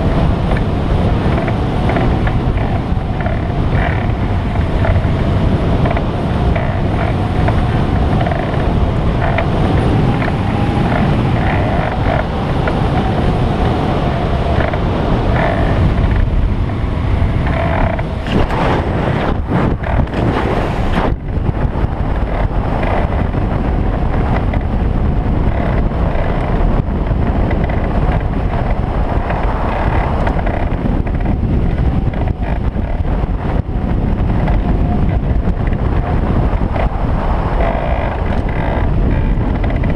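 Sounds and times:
wind rushing on microphone: 0.0s - 39.9s.

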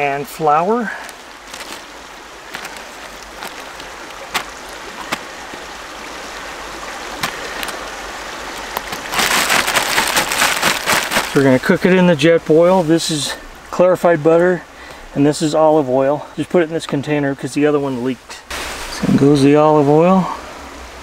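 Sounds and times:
sharp crackles: 0.9s - 5.6s, 7.1s - 11.7s
plastic bag crinkling: 1.0s - 5.4s, 7.2s - 7.8s, 8.5s - 11.6s.

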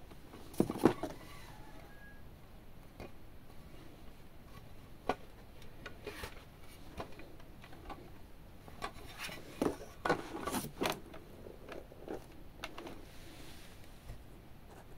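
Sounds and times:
cardboard scraping: 8.9s - 11.0s.

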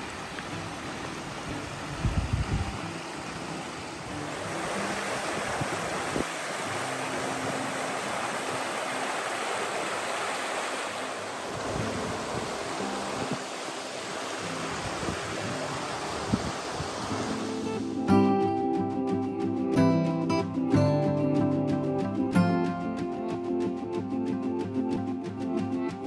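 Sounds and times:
stream running over rocks: 0.0s - 18.7s.

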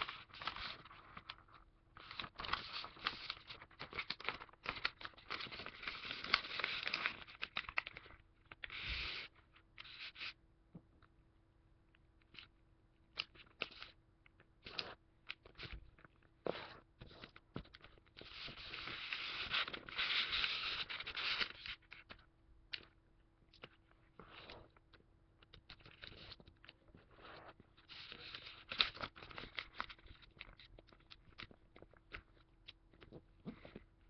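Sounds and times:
paper rustling: 0.0s - 10.3s, 14.6s - 22.2s
paper being folded: 0.0s - 10.4s, 13.2s - 14.0s, 14.6s - 22.9s, 25.4s - 32.4s.

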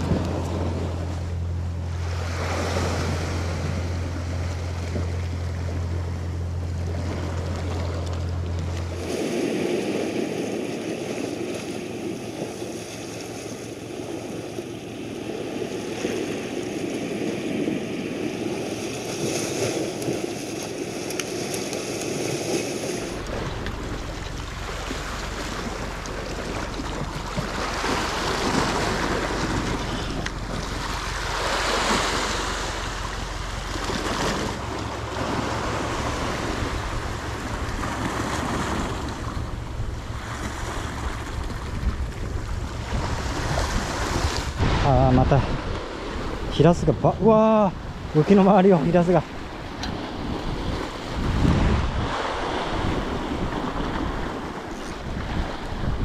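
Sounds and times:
steady low hum: 0.0s - 56.0s
surf washing against rocky shore: 0.0s - 56.0s
wind on microphone: 22.1s - 47.0s, 49.2s - 56.0s.

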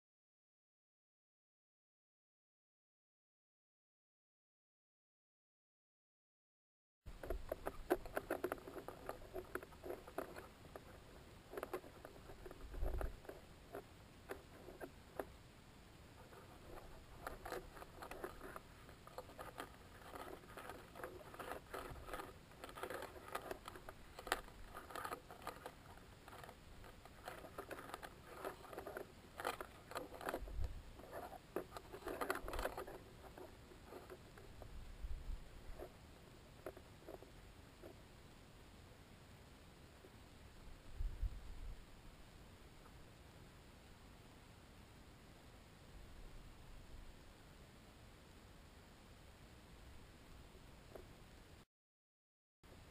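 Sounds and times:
crackling and scratching of housing: 7.1s - 34.8s, 35.5s - 38.0s.

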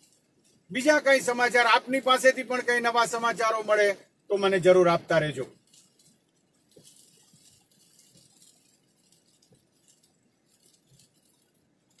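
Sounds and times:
faint ticks: 5.6s - 12.0s.

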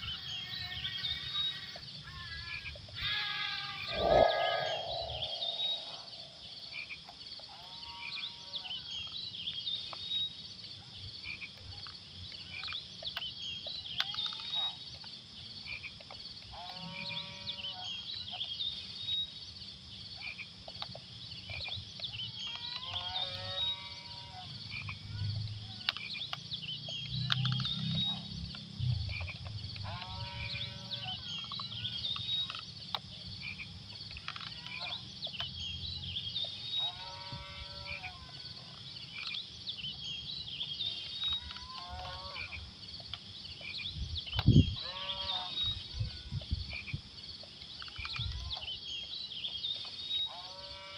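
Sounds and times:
wavering animal call: 3.0s - 6.4s
high chirping: 3.8s - 6.5s.

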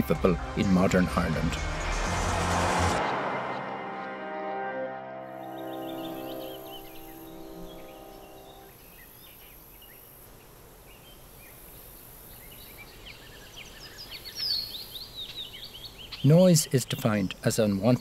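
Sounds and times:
held music chord: 0.0s - 8.7s
small birds chirping: 5.4s - 18.0s.

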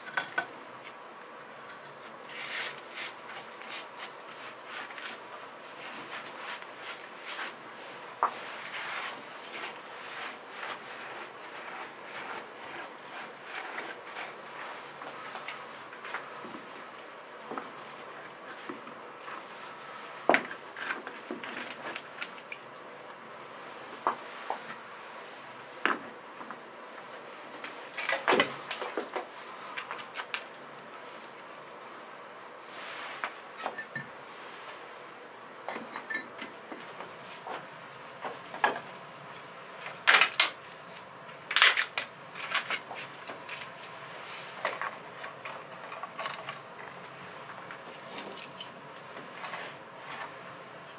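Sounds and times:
loud scraping noises: 1.6s - 17.0s.

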